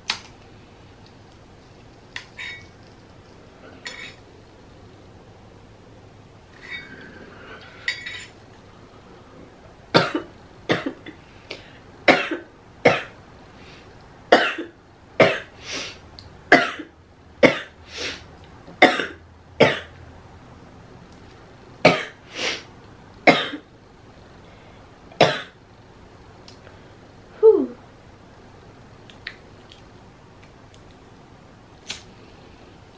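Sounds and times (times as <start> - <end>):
woman coughing: 12.1 - 13.1, 14.3 - 15.5, 16.5 - 17.7.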